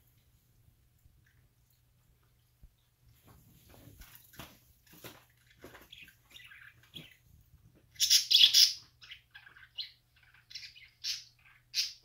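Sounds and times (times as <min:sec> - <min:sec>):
budgerigars chirping: 0:05.9 - 0:07.2, 0:07.9 - 0:12.0.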